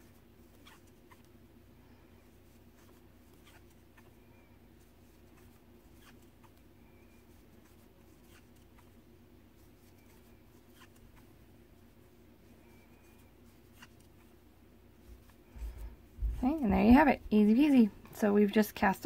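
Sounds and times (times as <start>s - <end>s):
crochet hook scratching yarn: 0.0s - 1.3s, 2.3s - 4.2s, 4.8s - 11.9s, 12.7s - 14.4s
low steady hum: 0.0s - 19.0s.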